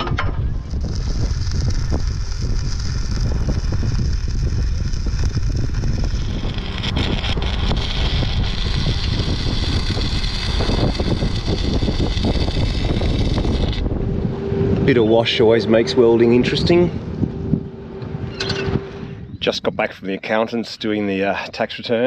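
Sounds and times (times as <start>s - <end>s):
wind buffeting microphone: 0.0s - 20.0s
arc welding crackling: 0.4s - 14.3s.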